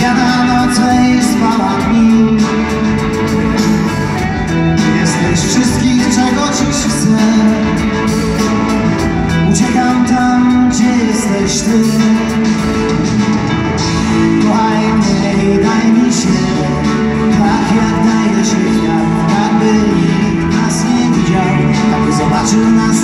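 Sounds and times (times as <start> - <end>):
drums with cymbal strokes: 0.0 - 15.4
bass guitar: 0.0 - 23.0
electric guitar: 0.0 - 23.0.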